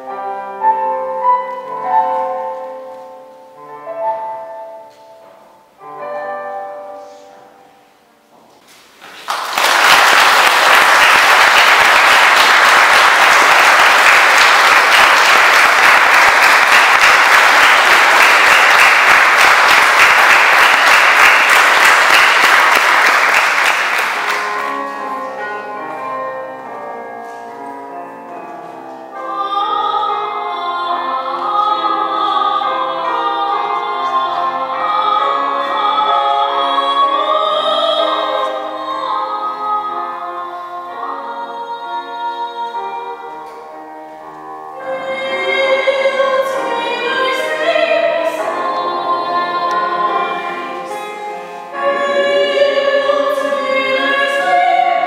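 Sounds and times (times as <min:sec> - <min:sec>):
digital piano: 0:00.0 - 0:09.0, 0:10.5 - 0:55.0
audience applauding: 0:09.0 - 0:25.0
woman singing classical: 0:29.1 - 0:43.5, 0:44.8 - 0:55.0.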